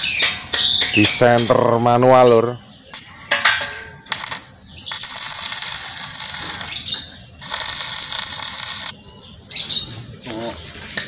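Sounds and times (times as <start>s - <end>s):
steel rail scraping on brick paving: 3.2s - 8.9s.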